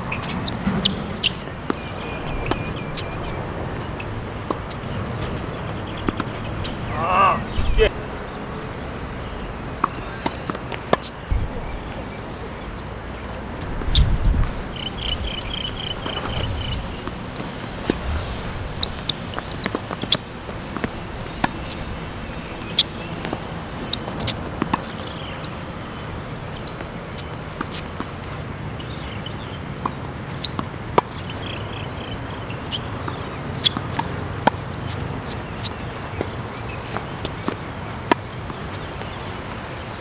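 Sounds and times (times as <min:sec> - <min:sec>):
balls bouncing on hard court: 0:00.0 - 0:07.9, 0:09.7 - 0:12.1, 0:18.8 - 0:25.7, 0:32.5 - 0:39.6
tennis balls struck by rackets: 0:00.0 - 0:07.9, 0:09.5 - 0:18.0, 0:18.8 - 0:28.4, 0:29.0 - 0:39.7.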